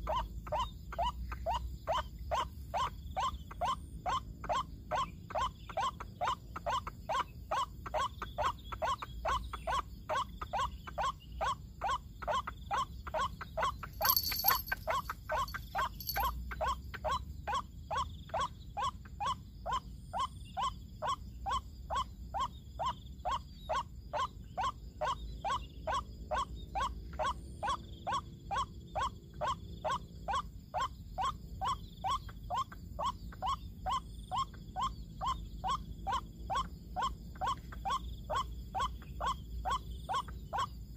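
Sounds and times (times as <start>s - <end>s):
waterhen calling: 14.0s - 16.3s.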